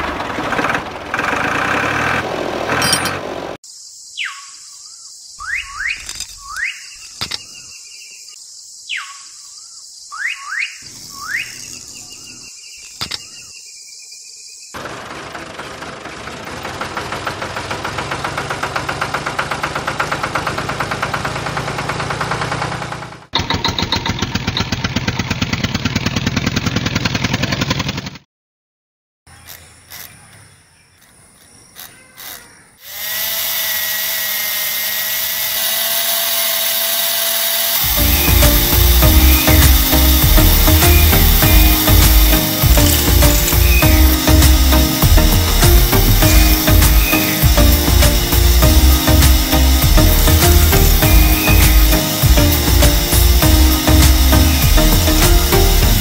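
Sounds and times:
motor running with fast pulse: 32.8 - 56.0
short rising squeaks: 37.8 - 56.0
steady high hiss: 37.8 - 56.0.

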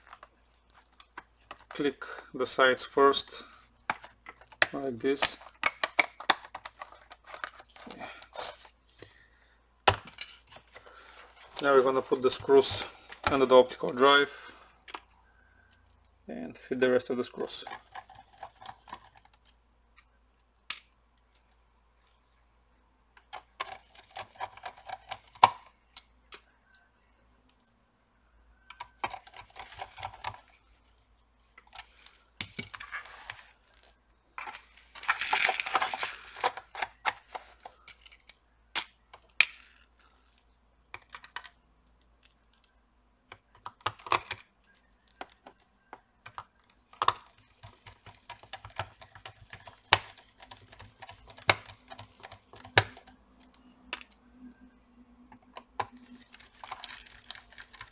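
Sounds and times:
plastic rustling: 29.0 - 38.3, 55.9 - 57.9.

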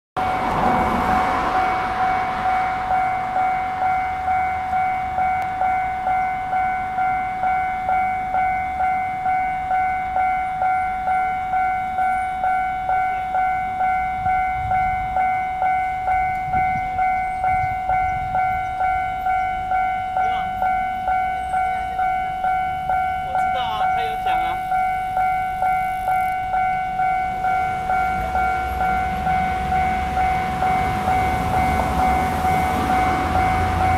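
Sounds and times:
level crossing warning bell ringing: 0.2 - 33.9.

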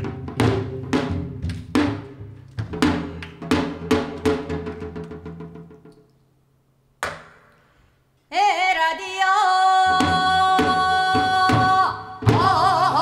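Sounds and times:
hand drum strokes and roll: 0.0 - 5.9.

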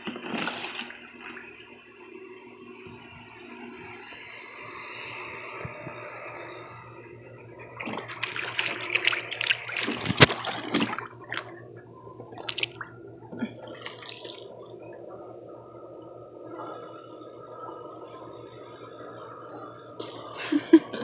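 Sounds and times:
water splashing in a pool: 0.0 - 1.6, 7.8 - 11.6, 12.3 - 14.9
water dripping: 12.2 - 15.1.

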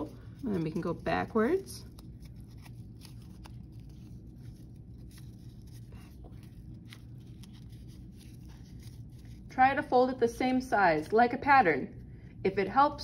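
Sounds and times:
paper strip crackling: 0.0 - 9.5
steady low hum: 0.0 - 13.0.

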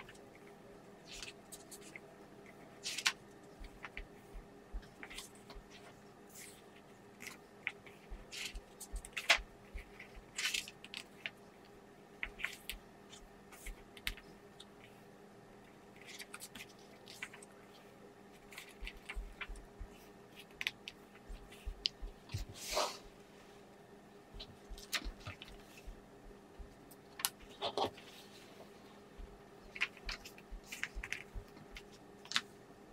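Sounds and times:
paper pages rustling and flicking: 24.4 - 25.9, 29.7 - 32.5.

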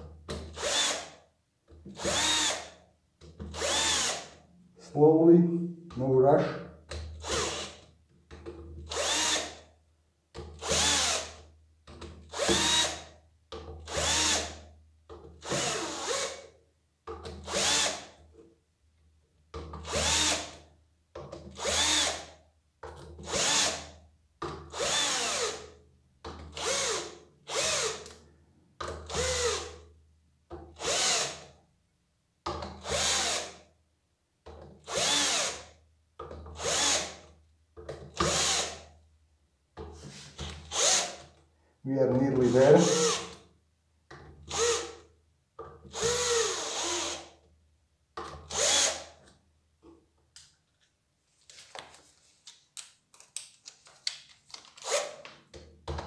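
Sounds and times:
cordless drill whining: 0.5 - 1.2, 2.0 - 2.8, 3.5 - 4.4, 7.2 - 7.8, 8.9 - 9.6, 10.6 - 11.4, 12.3 - 13.1, 13.9 - 14.6, 15.4 - 16.4, 17.4 - 18.1, 19.8 - 20.6, 21.5 - 22.3, 24.7 - 25.7, 26.5 - 28.2, 29.1 - 29.8, 30.8 - 31.5, 32.8 - 33.6, 34.9 - 35.7, 36.6 - 37.2, 38.2 - 38.9, 40.4 - 41.3, 42.4 - 43.4, 44.5 - 45.1, 45.8 - 47.4, 48.3 - 49.2, 54.6 - 55.3.

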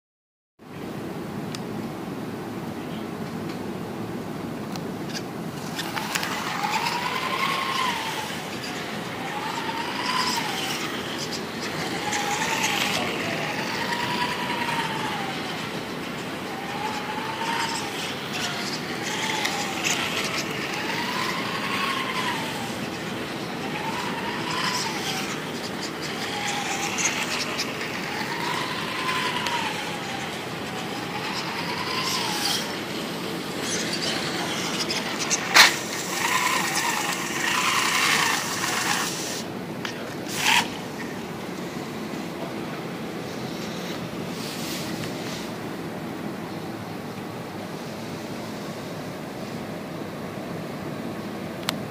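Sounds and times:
small electric motor whining: 5.1 - 45.7.

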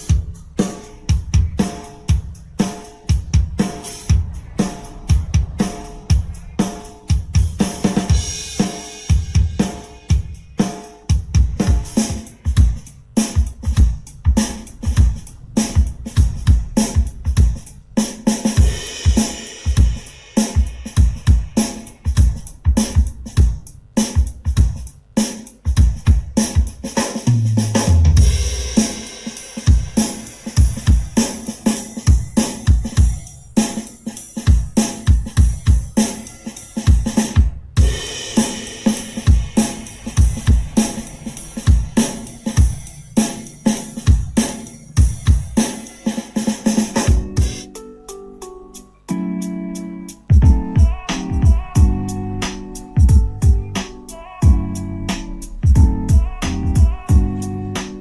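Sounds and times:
drum-heavy music from speaker: 0.0 - 58.0
deep bass note dropping: 3.4 - 8.4.

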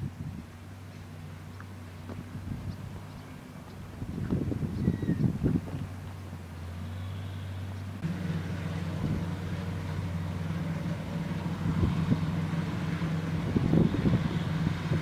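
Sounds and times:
wind rumble on microphone: 0.0 - 1.1, 2.0 - 6.3, 8.9 - 9.4, 11.4 - 15.0
harvester engine drone: 0.0 - 15.0.

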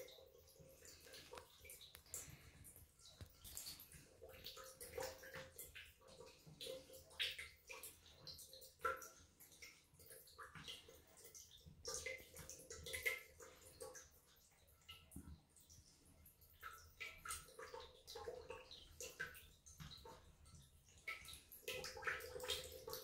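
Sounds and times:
cat lapping water: 0.0 - 23.0
shower water splashing on tiles: 0.0 - 23.0.

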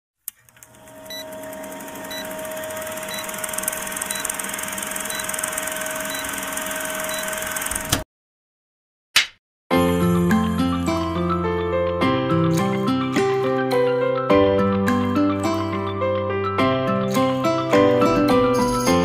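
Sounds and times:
film projector whirring and clattering: 0.3 - 8.0.

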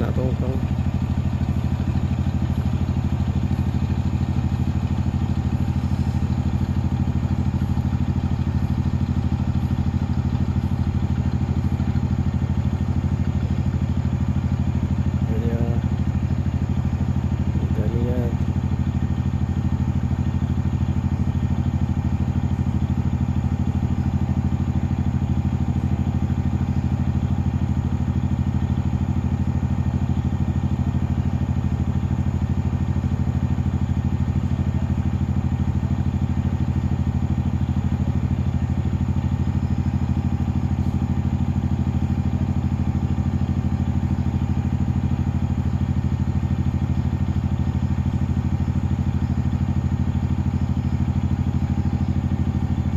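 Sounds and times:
boat engine droning: 0.0 - 52.9.

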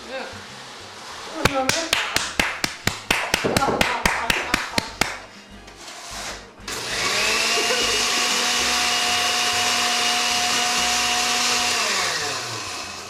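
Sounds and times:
blender motor whine: 6.7 - 13.0.

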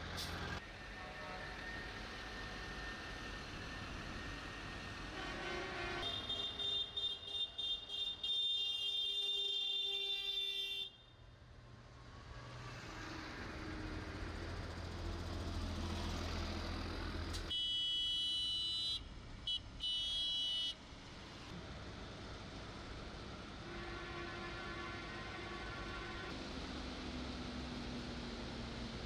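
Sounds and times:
tractor diesel engine drone: 0.0 - 5.9, 12.6 - 17.5
tractor horns honking: 5.1 - 11.1, 17.5 - 20.8, 23.6 - 26.4.

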